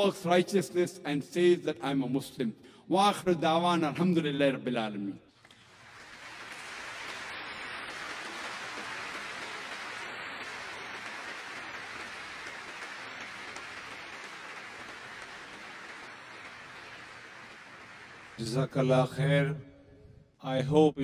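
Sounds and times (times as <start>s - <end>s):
audience applauding: 5.4s - 19.1s.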